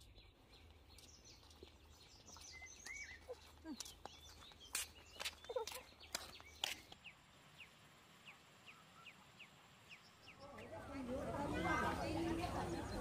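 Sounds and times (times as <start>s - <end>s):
footsteps on dirt road: 0.0s - 7.1s
bird chirps: 0.0s - 10.9s.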